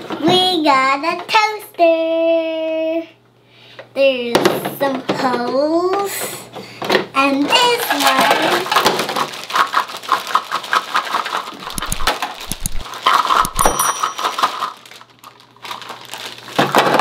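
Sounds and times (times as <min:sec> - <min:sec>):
plastic toy pieces shifting: 0:07.5 - 0:17.0
plastic bag crinkling: 0:07.6 - 0:17.0
bell-like ding: 0:13.6 - 0:14.2.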